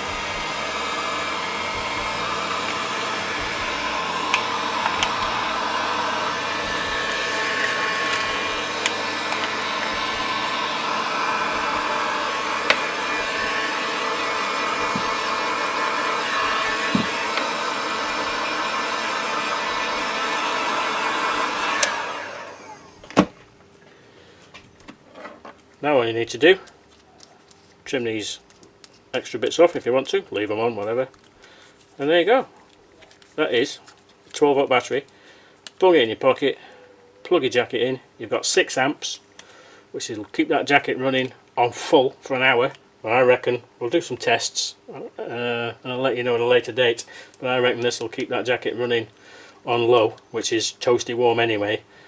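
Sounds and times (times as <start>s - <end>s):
heat gun blowing: 0.0s - 23.3s.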